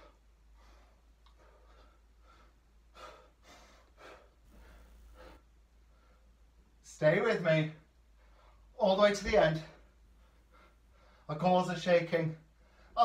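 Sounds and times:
man breathing effortfully: 0.0s - 6.7s, 9.8s - 11.3s.

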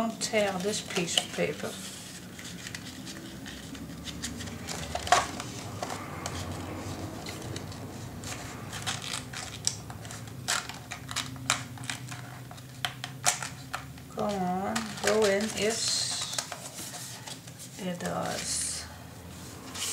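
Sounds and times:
paper rustling and scraping: 0.0s - 19.9s.

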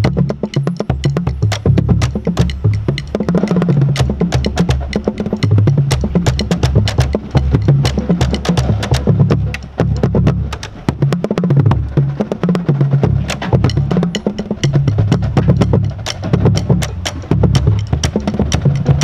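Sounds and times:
marching bass drums playing: 0.0s - 19.0s
sharp wooden clicks: 13.3s - 19.0s.

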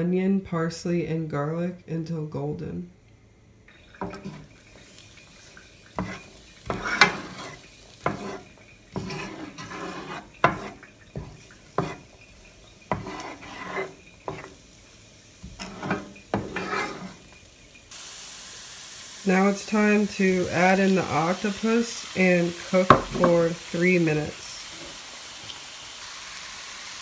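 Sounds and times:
onion sizzling in oil: 3.4s - 27.0s
wooden spoon scraping frying pan: 3.7s - 17.4s, 19.4s - 25.0s.

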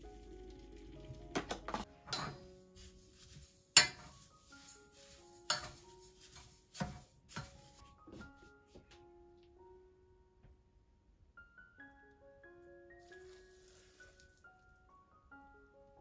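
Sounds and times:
soft piano music: 0.0s - 16.0s
wooden spoon stirring in saucepan: 2.1s - 7.8s.

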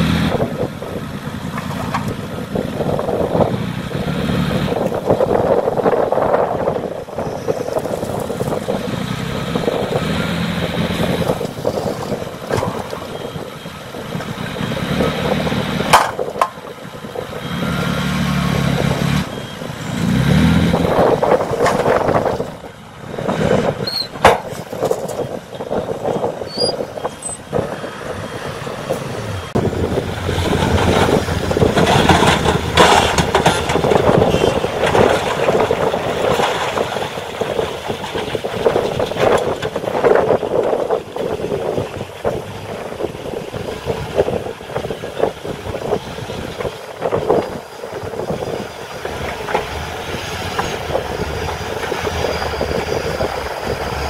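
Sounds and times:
diesel truck engine revving: 0.0s - 54.0s
soil unloading: 23.8s - 40.0s.

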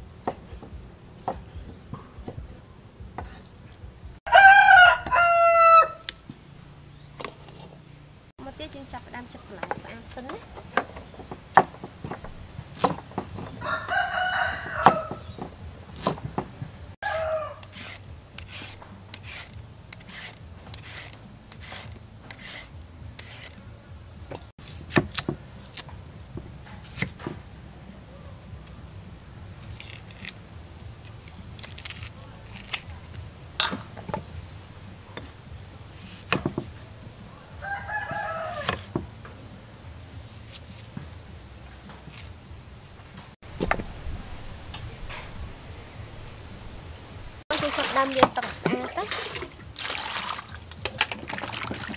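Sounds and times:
rooster crowing: 4.3s - 6.2s, 13.4s - 15.4s, 17.0s - 17.9s, 37.5s - 39.0s.

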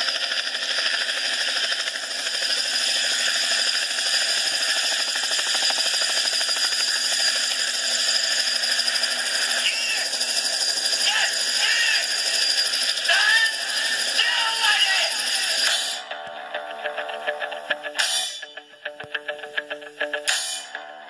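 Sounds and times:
machine rattling buzz: 0.0s - 18.5s.

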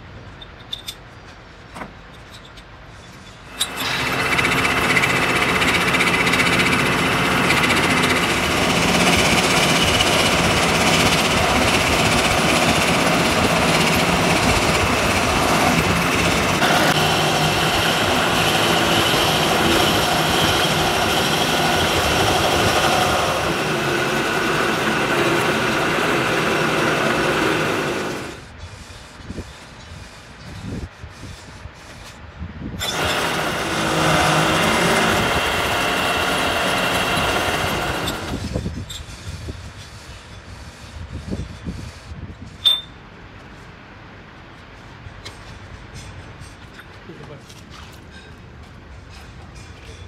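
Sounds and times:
lathe tool grinding metal: 3.5s - 28.5s, 32.8s - 38.6s.

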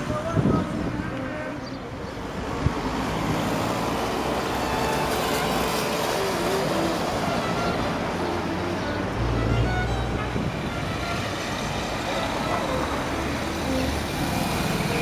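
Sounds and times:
cars passing: 0.0s - 15.0s.

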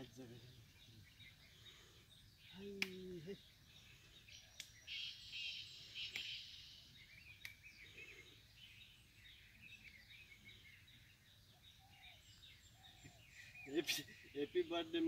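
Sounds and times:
small birds chirping: 0.0s - 15.0s
sharp clicks: 7.4s - 7.6s.

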